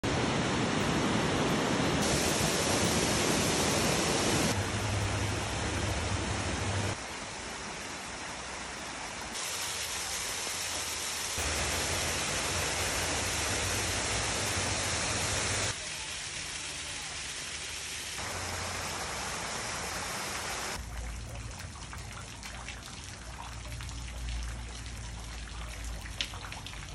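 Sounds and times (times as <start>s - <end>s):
waterfalls rushing and splashing: 0.0s - 20.8s.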